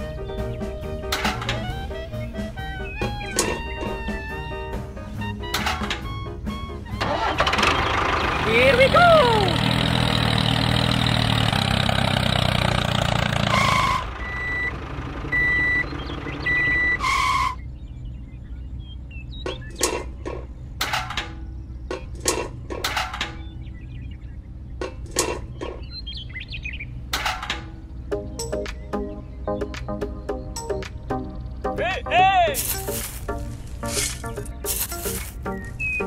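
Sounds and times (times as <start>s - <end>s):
toy tractor engine sound: 7.0s - 17.5s
high reversing beeps: 13.5s - 17.7s.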